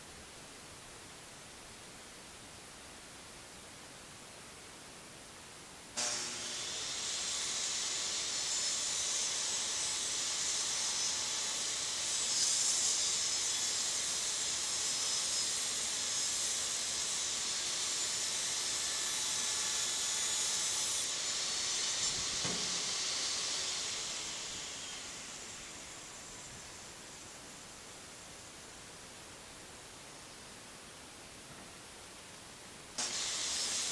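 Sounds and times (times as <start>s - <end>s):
table saw whining: 6.0s - 27.7s, 33.0s - 33.9s.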